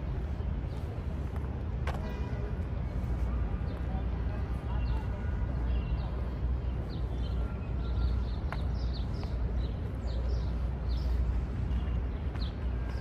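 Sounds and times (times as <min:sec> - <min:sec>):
low outdoor rumble: 0:00.0 - 0:13.0
small birds chirping: 0:02.9 - 0:13.0.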